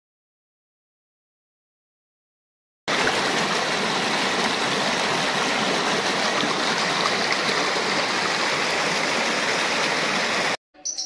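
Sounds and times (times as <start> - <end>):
river water rushing over rocks: 2.9 - 10.6.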